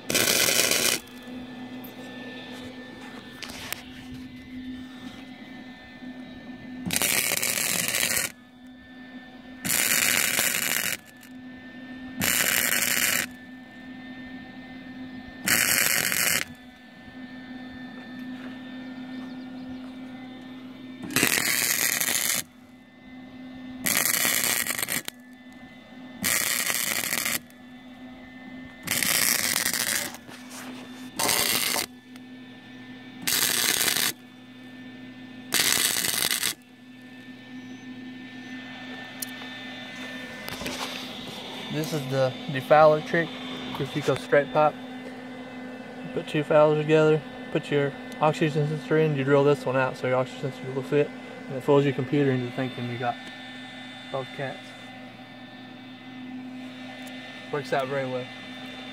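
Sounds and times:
welder crackling: 0.0s - 1.3s, 6.8s - 8.5s, 9.6s - 11.3s, 12.2s - 13.4s, 15.4s - 16.8s, 21.0s - 22.6s, 23.8s - 25.6s, 26.2s - 27.7s, 28.7s - 32.3s, 33.2s - 34.3s, 35.5s - 36.8s
welder humming: 0.0s - 58.9s.

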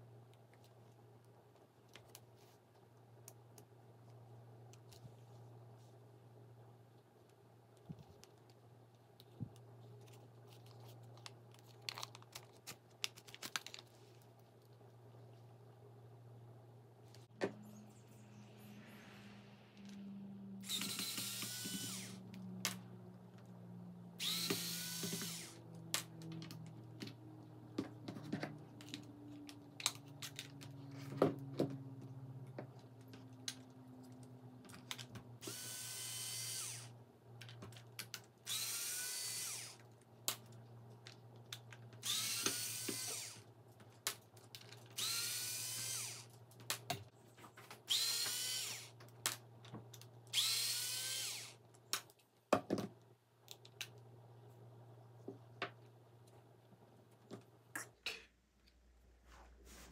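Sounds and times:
cordless power driver whirring: 20.6s - 22.3s, 24.2s - 25.6s, 35.4s - 36.9s, 38.5s - 39.8s, 42.0s - 43.4s, 45.0s - 46.2s, 47.9s - 48.9s, 50.3s - 51.6s.

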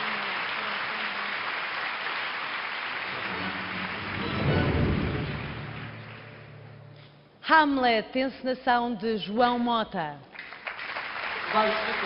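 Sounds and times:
applause: 0.0s - 6.8s, 10.3s - 12.0s.

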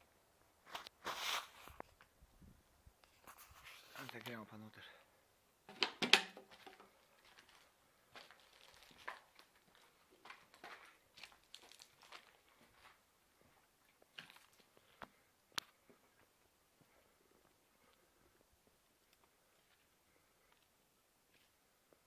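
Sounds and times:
footsteps crunching on rubble: 5.7s - 16.3s.

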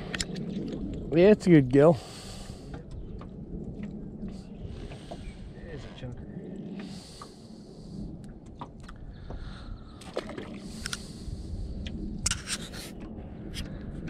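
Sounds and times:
low steady rumble: 0.0s - 14.0s
scraping and rubbing in a boat: 2.6s - 9.4s, 12.3s - 13.7s.

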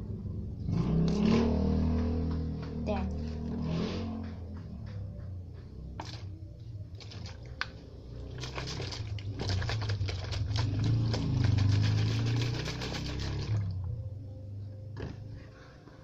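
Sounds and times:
water sloshing in shaken bottle: 6.9s - 13.9s.

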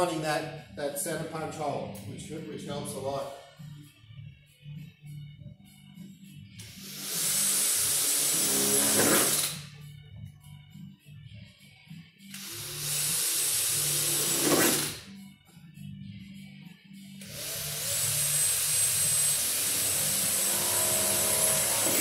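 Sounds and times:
background music: 0.0s - 22.0s
electric drill boring sheet metal: 6.6s - 9.6s, 12.4s - 15.0s, 17.2s - 22.0s.

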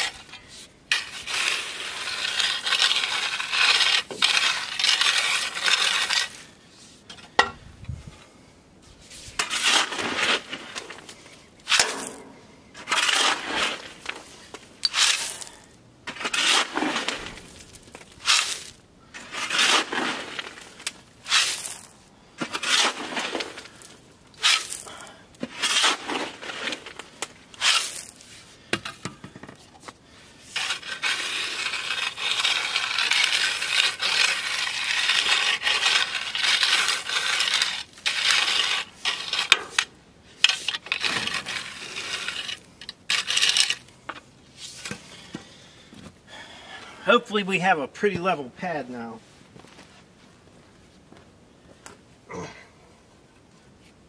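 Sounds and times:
rake scraping through gravel: 0.0s - 7.2s, 8.8s - 29.0s, 29.6s - 45.3s.

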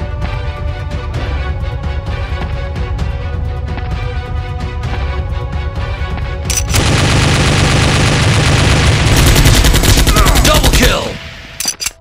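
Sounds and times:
automatic gunfire: 6.5s - 11.0s.

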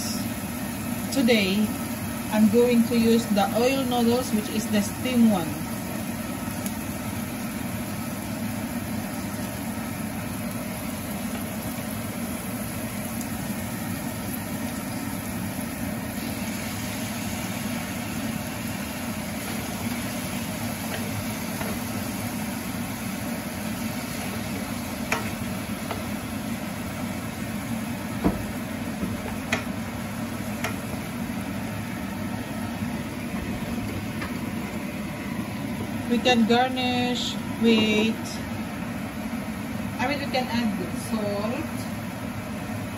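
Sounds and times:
food sizzling in oil: 0.0s - 39.7s
wooden spatula knocking a pan: 25.1s - 26.1s, 28.2s - 29.7s.

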